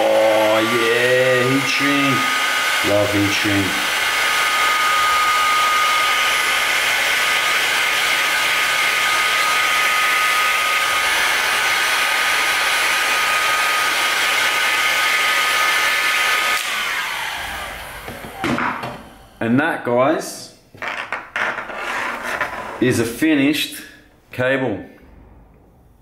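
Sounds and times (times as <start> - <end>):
heat gun blowing hot air: 0.0 - 19.4
fan winding down: 0.0 - 19.5.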